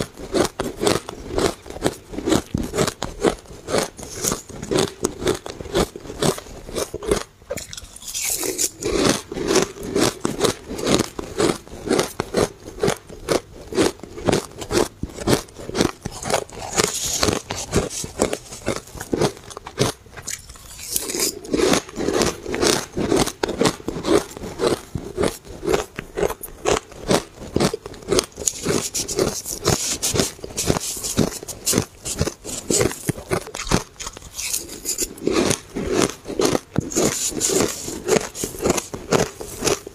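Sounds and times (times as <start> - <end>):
person chewing shaved ice: 0.0 - 39.9.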